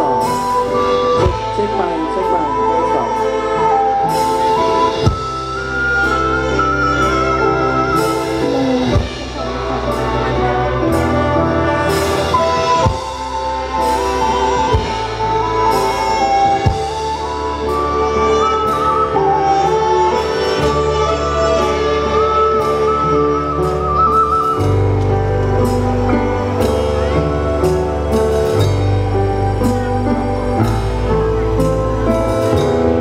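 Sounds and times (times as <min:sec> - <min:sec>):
band music over pa system: 0:00.0 - 0:33.0.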